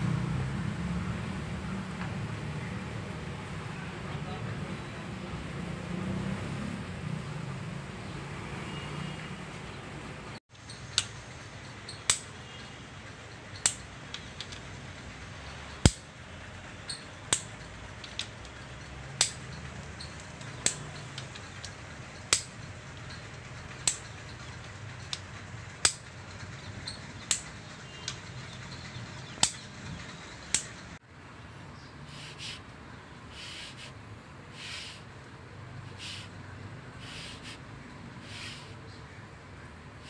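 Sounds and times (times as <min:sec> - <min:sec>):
torque wrench clicking: 0:10.6 - 0:12.6, 0:13.2 - 0:16.2, 0:16.8 - 0:30.8.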